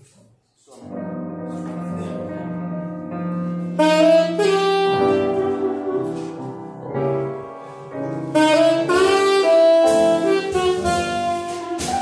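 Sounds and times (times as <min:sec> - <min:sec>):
sustained piano chords: 0:00.8 - 0:12.0
tenor saxophone jazz melody: 0:01.5 - 0:12.0.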